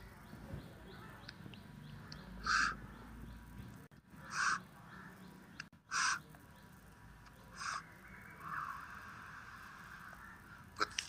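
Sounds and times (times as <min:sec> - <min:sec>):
bird short harsh calls: 0:02.1 - 0:03.0, 0:04.2 - 0:05.2, 0:05.9 - 0:06.3, 0:07.5 - 0:11.0.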